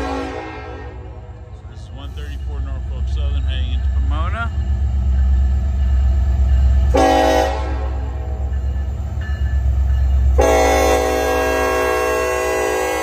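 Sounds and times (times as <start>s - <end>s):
locomotive air horn: 0.0s - 1.2s, 6.9s - 8.3s, 10.4s - 13.0s.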